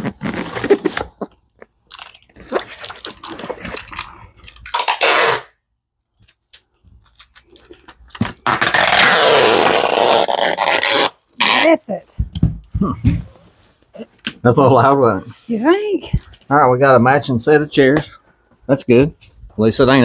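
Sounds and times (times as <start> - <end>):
packing tape pulled off dispenser: 1.9 - 5.6, 6.5 - 11.6.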